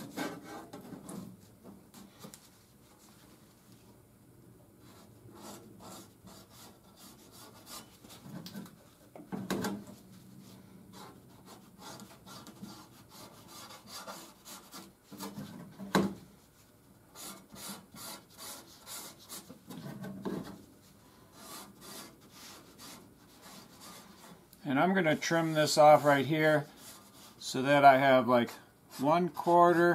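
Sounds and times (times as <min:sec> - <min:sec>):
marker scratching on steel: 0:04.9 - 0:08.4, 0:10.9 - 0:15.4, 0:17.1 - 0:19.6, 0:21.3 - 0:24.4.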